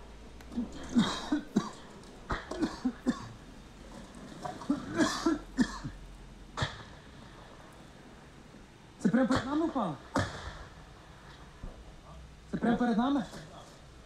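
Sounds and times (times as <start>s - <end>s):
person coughing hard: 0.6s - 3.4s, 4.6s - 6.0s.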